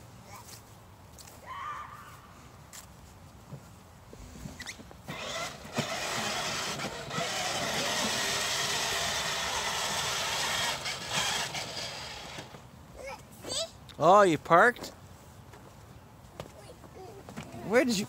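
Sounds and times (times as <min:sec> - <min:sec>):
electric toy motorcycle whirring: 0:04.6 - 0:12.6
plastic wheels rolling: 0:04.6 - 0:12.6.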